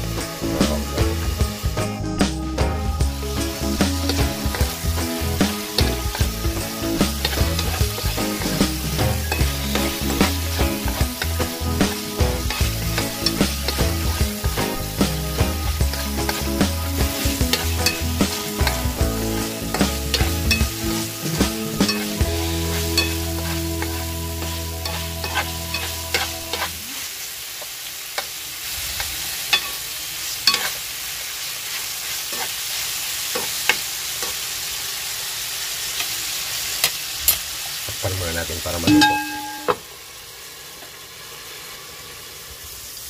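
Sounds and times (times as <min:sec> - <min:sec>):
background music with bass: 0:00.0 - 0:26.8
chicken sizzling in a pan: 0:00.0 - 0:43.0
spatula scraping metal pan: 0:21.7 - 0:26.8.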